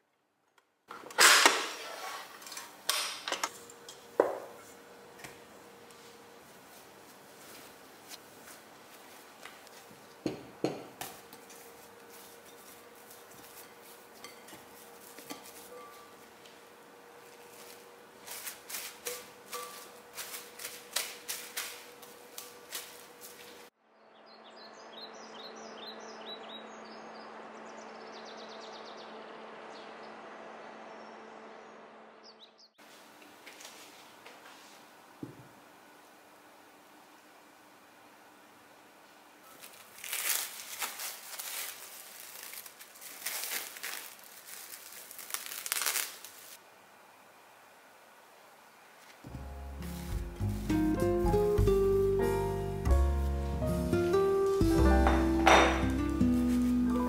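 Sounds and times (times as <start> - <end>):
wrapping material crinkling: 11.1 - 23.7, 39.5 - 46.6, 56.0 - 57.0
cutlery clinking against bowl: 13.5 - 16.2.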